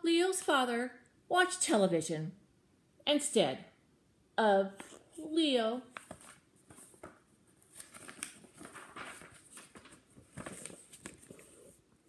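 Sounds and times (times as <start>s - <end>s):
paper rustling: 5.9s - 11.8s.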